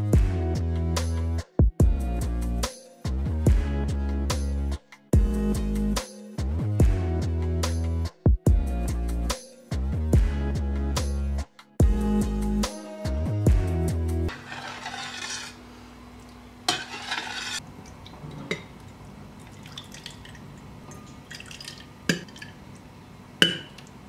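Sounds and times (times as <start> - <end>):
background music: 0.0 - 14.6
soup pouring into bowl: 18.8 - 22.6
metal ladle clinking on glass: 23.4 - 23.8.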